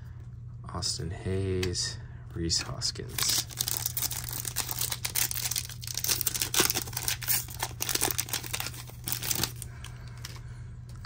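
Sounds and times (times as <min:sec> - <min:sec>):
steady low hum: 0:00.0 - 0:11.0
card pack wrapper crinkling: 0:03.1 - 0:10.4.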